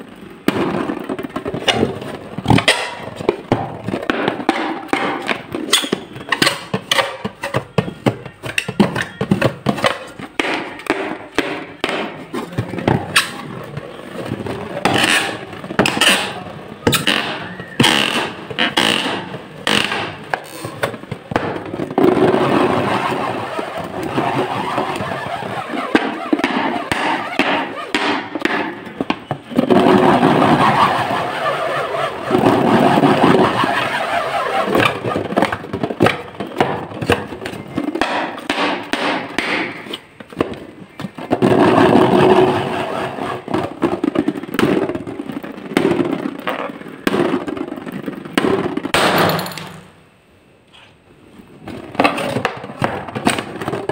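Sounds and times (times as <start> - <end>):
rubber balloon squeaking: 12.4 - 21.0, 21.6 - 38.1, 40.9 - 43.9.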